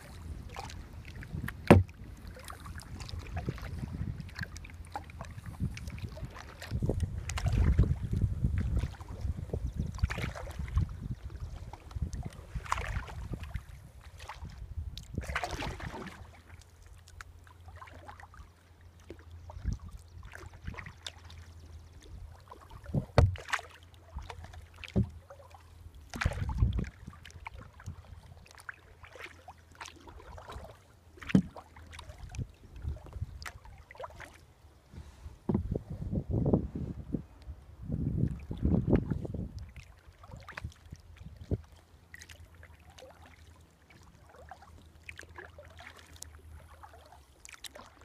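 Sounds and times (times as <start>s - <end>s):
wind rumble on microphone: 0.0s - 16.4s, 19.4s - 23.4s, 26.0s - 28.6s, 31.3s - 33.9s, 34.9s - 41.8s
paddle splashing in water: 0.0s - 36.0s, 38.2s - 48.0s.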